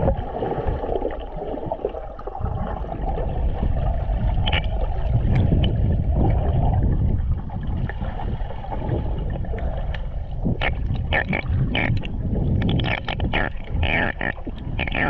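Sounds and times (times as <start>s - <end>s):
bubbly bursts: 0.0s - 7.0s
underwater rumble and gurgling: 0.0s - 15.0s.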